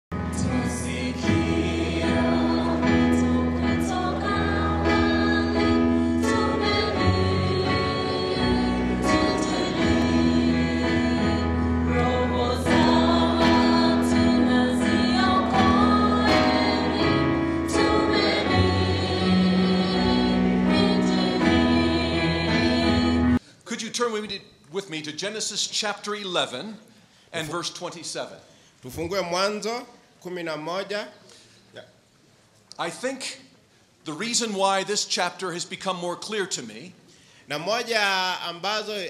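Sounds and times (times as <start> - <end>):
gospel choir singing: 0.1 - 23.4.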